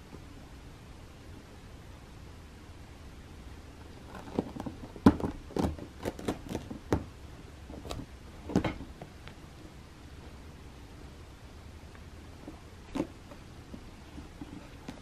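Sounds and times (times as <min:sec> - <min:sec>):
cat claws scratching a ramp: 0:04.0 - 0:06.8.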